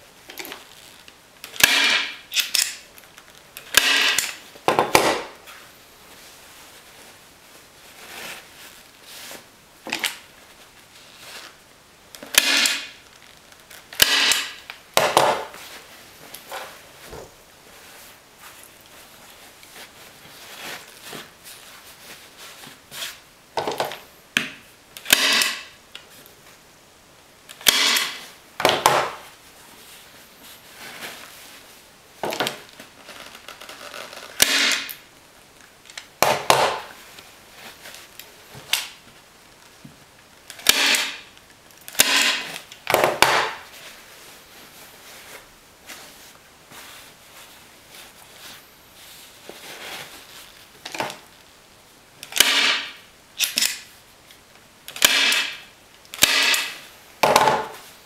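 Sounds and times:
faint fabric rustling: 5.4s - 12.0s, 15.4s - 23.3s, 29.2s - 34.3s, 36.9s - 40.4s, 43.6s - 51.8s
staple gun firing: 25.0s - 25.6s, 27.6s - 29.1s, 52.3s - 53.8s, 55.0s - 55.6s, 56.2s - 56.8s.

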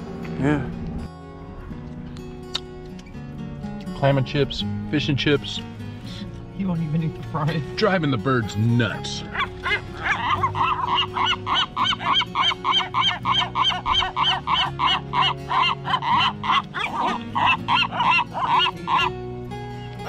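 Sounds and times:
gulls calling harshly: 8.9s - 20.0s.

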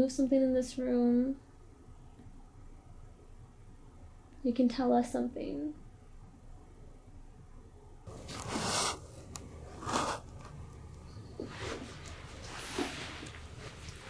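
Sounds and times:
soft rustling and shuffling: 8.1s - 14.0s.

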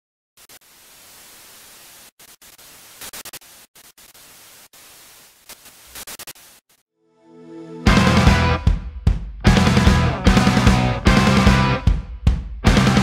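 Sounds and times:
crackling bursts: 0.4s - 6.8s
static hiss: 0.4s - 6.8s.

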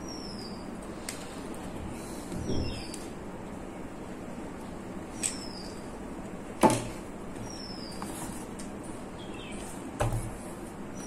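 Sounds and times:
faint bird chirps: 0.0s - 0.7s, 2.3s - 3.1s, 5.1s - 5.9s, 7.4s - 8.2s.

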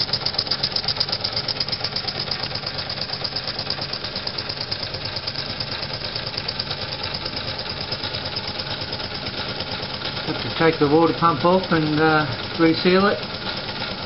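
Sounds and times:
toy steam engine chuffing: 0.0s - 14.0s.

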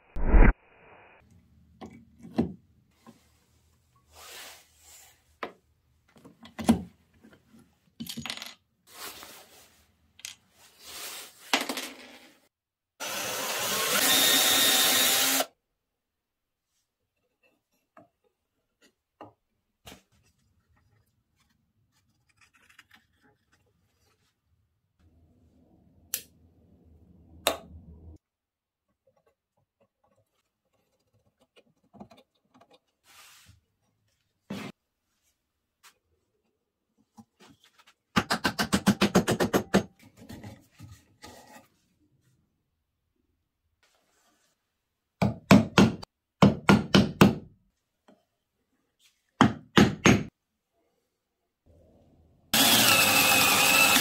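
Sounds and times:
small power tool running: 13.0s - 15.5s, 52.6s - 54.0s.

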